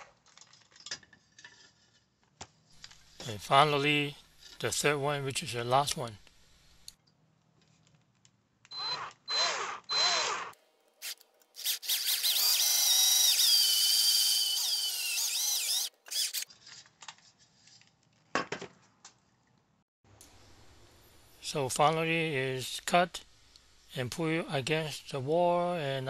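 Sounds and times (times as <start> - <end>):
cordless drill whining: 8.7 - 16.5.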